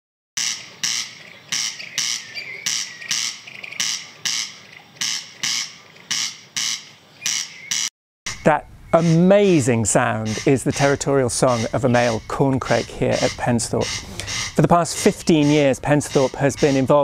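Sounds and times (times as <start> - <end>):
corncrake rasping call: 0.4 - 17.0.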